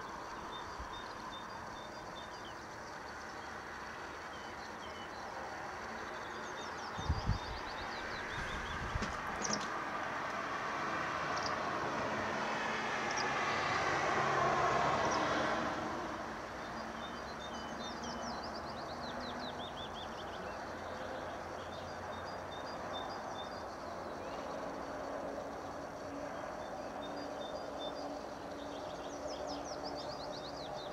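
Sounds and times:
birds singing: 0.0s - 9.8s, 16.6s - 24.6s, 26.0s - 30.9s
passing vehicle rumble: 5.4s - 22.6s.

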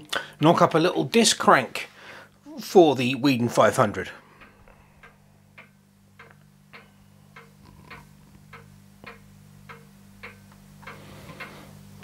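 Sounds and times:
steady low hum: 0.0s - 12.0s
faint even ticking: 4.2s - 12.0s.

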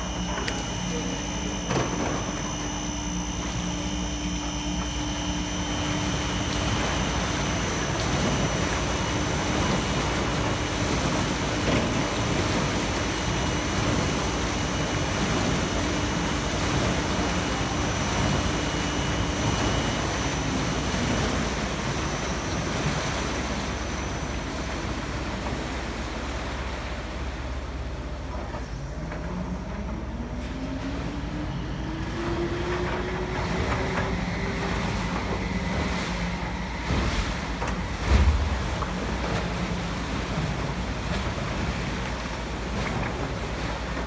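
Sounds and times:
water churning and splashing: 0.0s - 44.0s.

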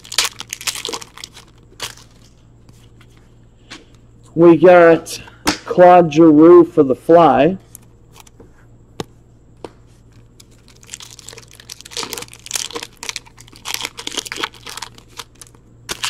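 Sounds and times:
foil wrapper tearing and crinkling: 0.0s - 2.4s, 10.3s - 16.0s.

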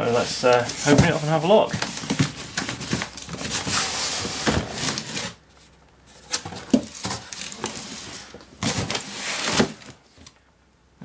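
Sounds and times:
cardboard rustling and scraping: 0.0s - 10.4s
boxes knocking: 0.7s - 3.7s.

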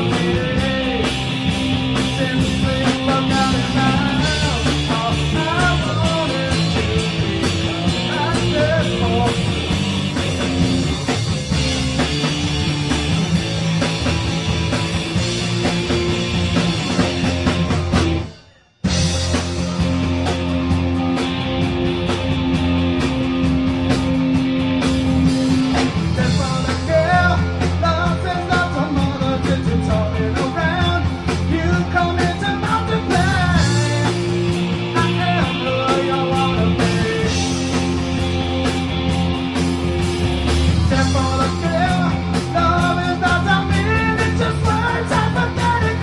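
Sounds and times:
person singing: 0.0s - 1.2s, 1.9s - 9.6s, 26.1s - 37.8s, 40.9s - 46.0s
rock band playing live: 0.0s - 46.0s.

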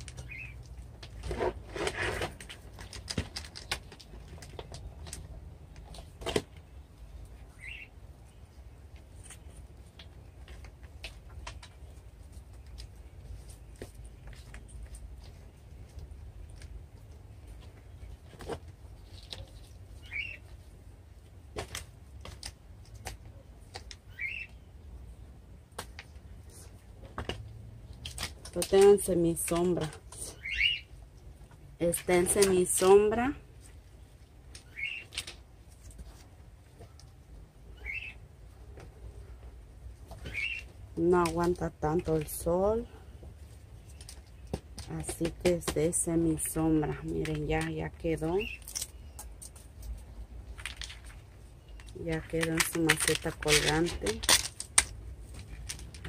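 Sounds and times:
soil rustling and scraping: 0.0s - 6.4s
bird chirping: 0.1s - 0.6s, 6.6s - 8.6s, 19.4s - 20.5s, 24.0s - 24.9s, 30.3s - 30.9s, 34.6s - 35.2s, 37.6s - 38.2s, 40.2s - 40.8s.

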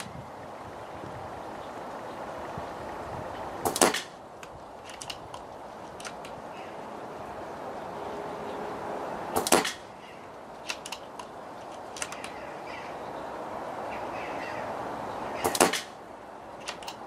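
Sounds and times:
air rifle shot: 3.6s - 4.2s, 9.3s - 9.9s, 15.4s - 16.0s
rifle bolt clicks: 3.7s - 6.4s, 10.6s - 12.4s, 16.6s - 17.0s.

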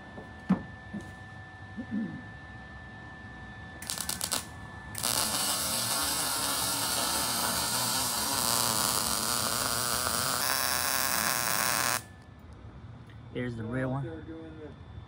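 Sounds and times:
welding arc crackling: 3.8s - 12.1s.

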